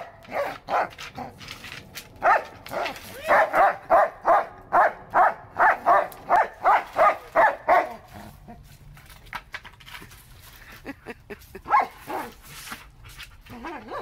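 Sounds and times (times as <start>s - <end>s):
board scraping on concrete: 0.0s - 3.8s, 6.2s - 10.8s, 11.7s - 14.0s
dog barking: 2.2s - 2.4s, 3.3s - 8.0s.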